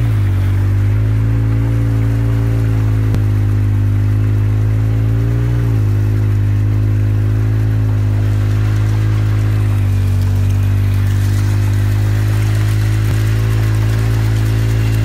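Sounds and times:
engine running under load: 0:00.0 - 0:15.0
mud and water splashing: 0:00.0 - 0:15.0.

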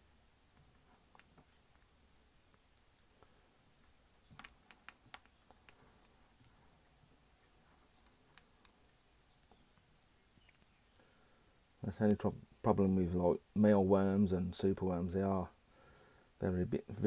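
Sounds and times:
soft clicks: 0:02.5 - 0:06.6, 0:08.0 - 0:08.9, 0:09.5 - 0:11.0
faint high chirps: 0:04.1 - 0:12.8.

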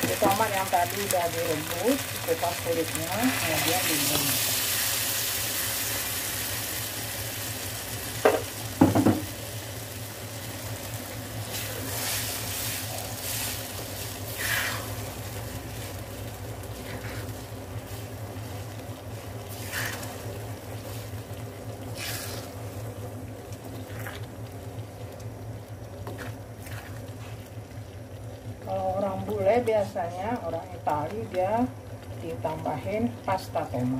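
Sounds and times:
sauce sizzling in a frying pan: 0:00.0 - 0:33.9
spatula knocking on pan: 0:08.2 - 0:09.3
spatula scraping a pan: 0:14.3 - 0:15.0, 0:16.8 - 0:18.0, 0:19.5 - 0:20.2.

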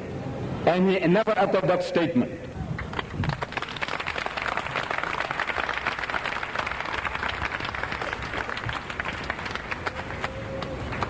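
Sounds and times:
large audience applauding: 0:02.9 - 0:11.0.

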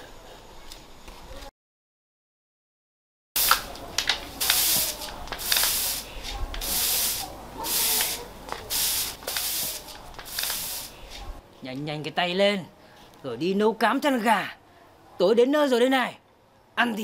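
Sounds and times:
broom sweeping brick floor: 0:03.4 - 0:11.4.

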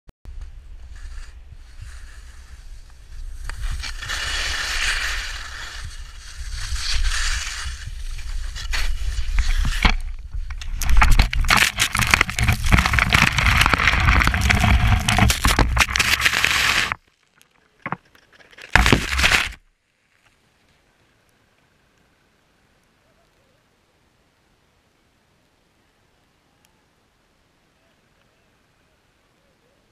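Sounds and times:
wind noise on microphone: 0:00.3 - 0:17.0
crunching snow and knocks from fall: 0:00.4 - 0:17.0, 0:17.6 - 0:19.6
skis scraping over snow: 0:00.6 - 0:17.0, 0:18.6 - 0:19.6.

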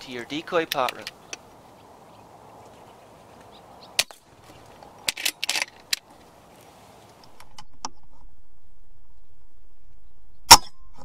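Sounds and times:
background hiss: 0:00.0 - 0:10.4
sharp clicks: 0:00.6 - 0:01.4.

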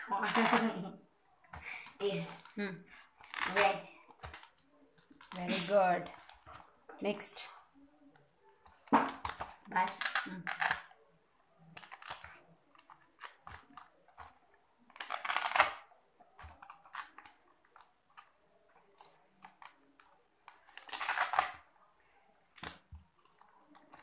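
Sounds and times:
paper cards rustling: 0:00.2 - 0:00.9, 0:01.6 - 0:06.7, 0:11.6 - 0:21.7.

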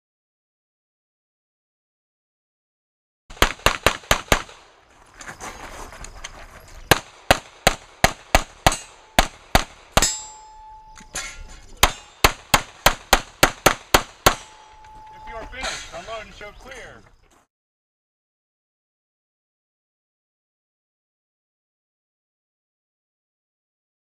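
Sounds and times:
pistol shots: 0:03.3 - 0:04.8, 0:06.9 - 0:10.5, 0:11.1 - 0:14.9
ringing tone: 0:10.0 - 0:11.7, 0:14.4 - 0:15.9.

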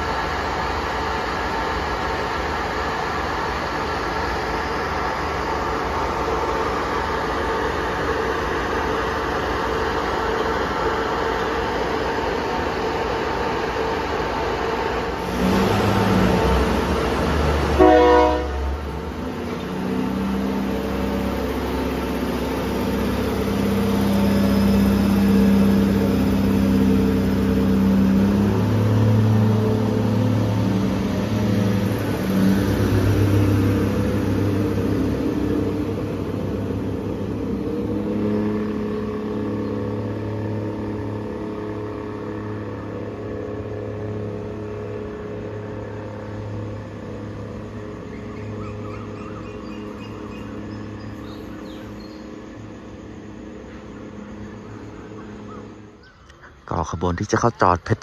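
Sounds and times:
diesel engines droning: 0:00.0 - 0:58.0
train wheels and engines rumbling: 0:00.0 - 0:58.0
train horn blast: 0:15.2 - 0:19.1.

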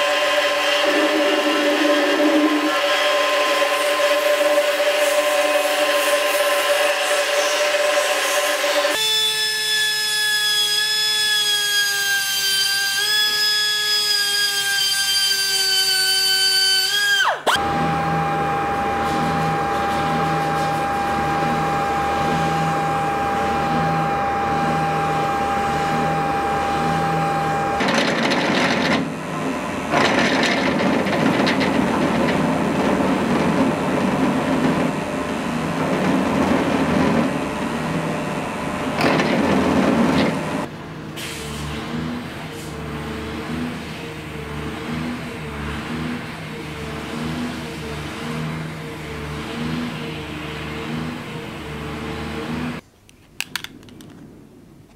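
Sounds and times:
rotary tool whining on metal: 0:00.0 - 0:40.7
drill press drilling metal: 0:15.4 - 0:38.1
steady machine tone: 0:17.6 - 0:28.0.

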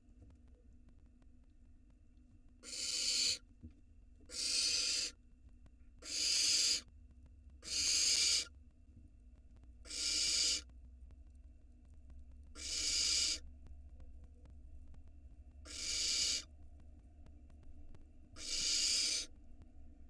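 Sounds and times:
faint low hum: 0:00.0 - 0:20.0
owl chicks hissing calls: 0:02.6 - 0:03.4, 0:04.3 - 0:05.2, 0:06.0 - 0:06.9, 0:07.6 - 0:08.5, 0:09.8 - 0:10.7, 0:12.6 - 0:13.4, 0:15.6 - 0:16.5, 0:18.4 - 0:19.3.

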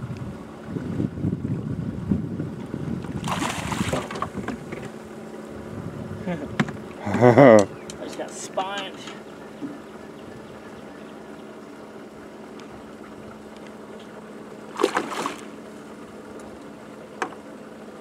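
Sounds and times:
steady low hum: 0:00.0 - 0:18.0
fish splashing at the surface: 0:03.2 - 0:04.3, 0:14.7 - 0:15.6.

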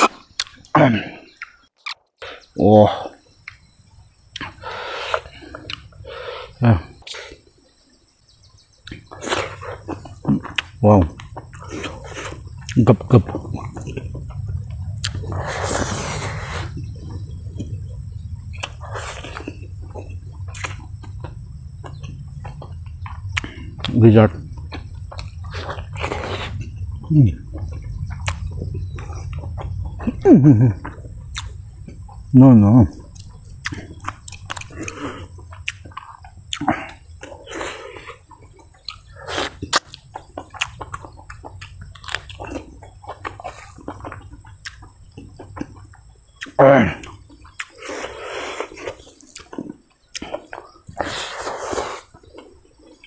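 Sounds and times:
smacking chewing clicks: 0:00.0 - 0:02.3, 0:04.3 - 0:06.0, 0:08.8 - 0:15.5, 0:16.7 - 0:53.0
sharp mouth clicks: 0:08.8 - 0:14.0, 0:15.0 - 0:16.7, 0:20.5 - 0:22.1, 0:30.8 - 0:31.6, 0:33.1 - 0:38.1, 0:46.4 - 0:52.2
man slurping food: 0:15.0 - 0:16.8, 0:18.8 - 0:19.5, 0:25.5 - 0:26.6, 0:39.2 - 0:39.6, 0:47.8 - 0:49.0, 0:51.0 - 0:52.2.

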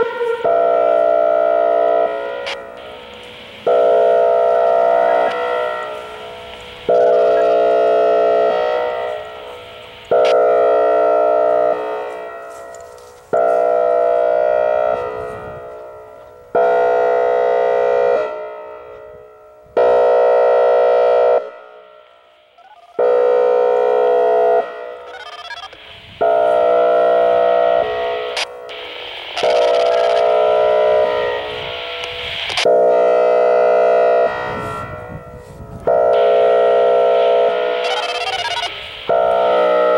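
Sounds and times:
warning siren airhorn blasts: 0:00.0 - 0:39.9.

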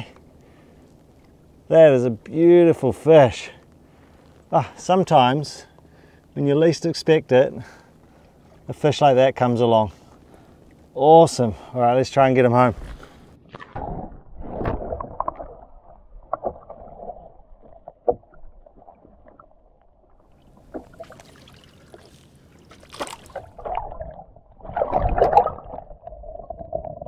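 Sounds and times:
muffled underwater water sloshing: 0:12.6 - 0:27.0.

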